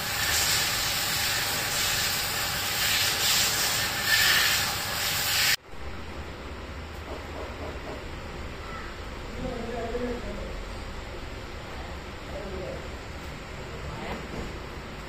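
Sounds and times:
pressure washer water jet hissing: 0:00.0 - 0:05.6.

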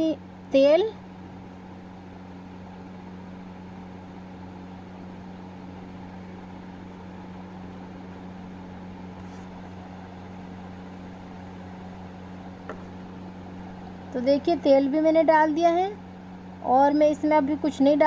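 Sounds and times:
low electric motor hum: 0:00.0 - 0:18.0.

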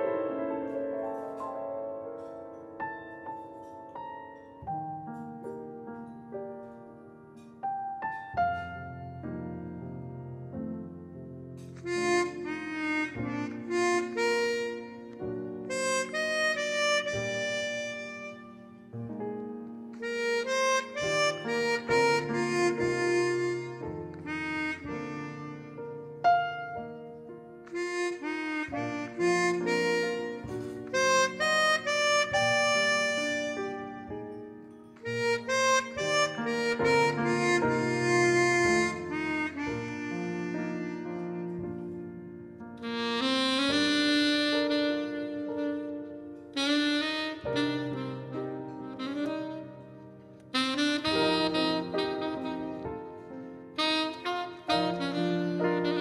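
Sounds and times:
piano accompaniment: 0:00.0 - 0:56.0
harmonica playing melody: 0:11.6 - 0:19.2, 0:19.9 - 0:41.9, 0:42.8 - 0:56.0.

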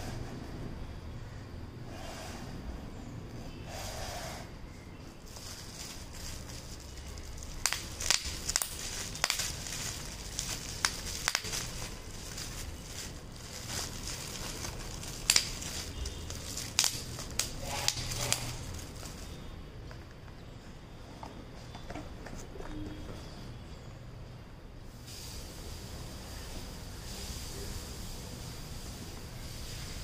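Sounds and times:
bubble wrap crinkling: 0:05.2 - 0:19.5
bubble wrap popping: 0:05.3 - 0:19.3.

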